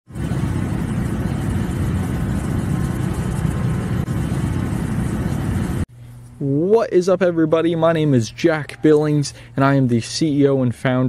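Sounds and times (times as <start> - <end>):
fire rumbling and crackling: 0.1 - 5.9.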